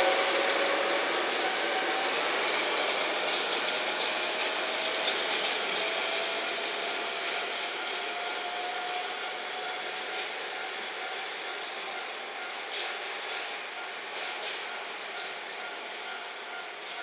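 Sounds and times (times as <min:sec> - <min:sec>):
locomotive running: 0:00.0 - 0:17.0.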